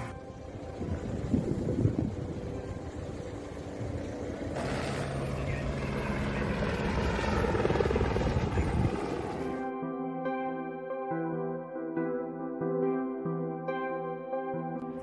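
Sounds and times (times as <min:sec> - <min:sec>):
helicopter rotor and turbine: 0:00.0 - 0:09.7.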